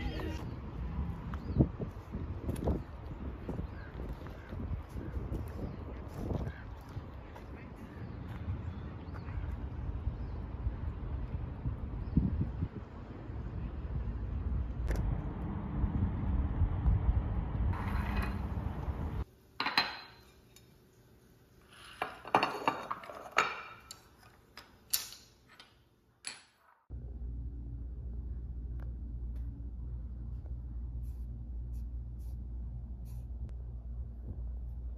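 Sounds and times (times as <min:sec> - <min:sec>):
wind rumble on microphone: 0:00.0 - 0:19.2, 0:33.3 - 0:34.9
low room hum: 0:26.9 - 0:34.9.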